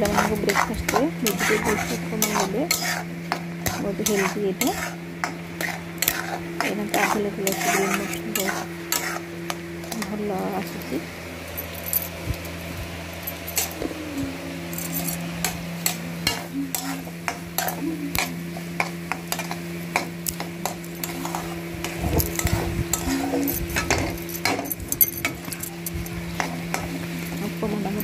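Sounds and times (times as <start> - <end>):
metal spatula scraping pan: 0.0 - 10.2, 15.8 - 17.8, 19.3 - 24.7
steady low hum: 0.0 - 28.0.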